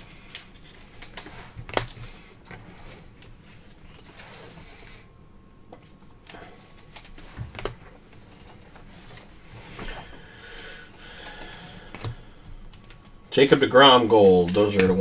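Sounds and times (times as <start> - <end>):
faint rustle of cards: 0.0 - 5.1.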